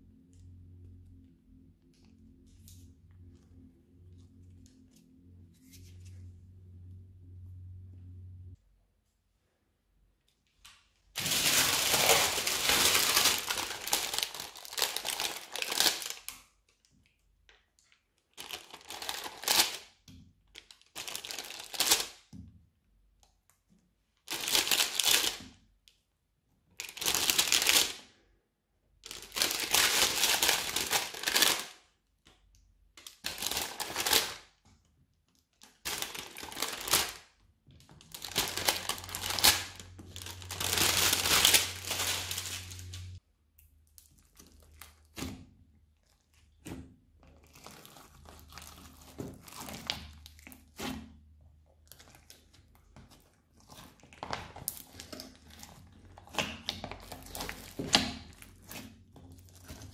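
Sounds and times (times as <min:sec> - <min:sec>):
plastic pack crinkling: 0:11.1 - 0:16.4, 0:18.2 - 0:19.9, 0:20.5 - 0:22.2, 0:24.2 - 0:25.4, 0:26.8 - 0:28.0, 0:29.0 - 0:31.8, 0:33.0 - 0:34.5, 0:35.5 - 0:37.3, 0:37.9 - 0:43.2, 0:51.8 - 0:59.9.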